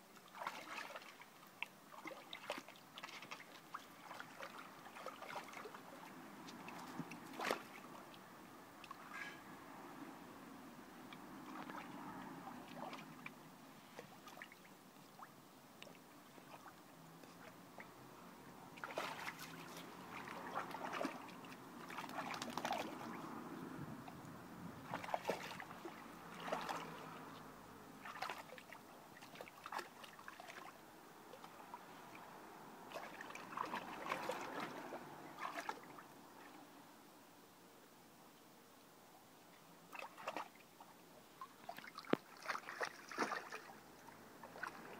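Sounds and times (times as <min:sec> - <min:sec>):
dog splashing in water: 0:00.3 - 0:01.2, 0:01.9 - 0:07.9, 0:11.4 - 0:13.3, 0:18.8 - 0:23.4, 0:24.8 - 0:27.3, 0:28.0 - 0:30.7, 0:32.9 - 0:36.0, 0:39.9 - 0:40.5, 0:41.7 - 0:43.8, 0:44.4 - 0:44.9.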